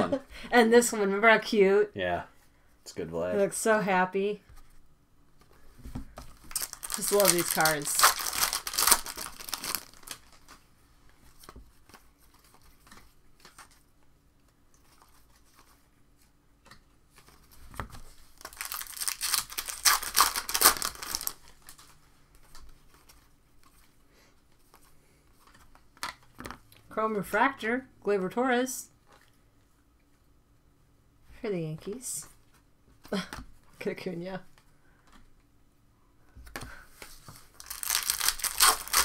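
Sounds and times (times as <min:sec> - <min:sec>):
cards rustling and clicking: 0:05.4 - 0:26.6, 0:36.4 - 0:39.0
wrappers tearing and crinkling: 0:06.4 - 0:10.6, 0:18.2 - 0:21.9, 0:37.5 - 0:39.0.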